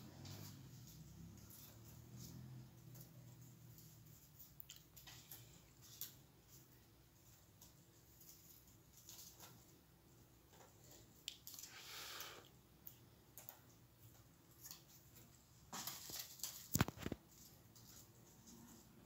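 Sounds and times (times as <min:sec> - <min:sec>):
paper rustling and clicking: 0:13.4 - 0:18.9.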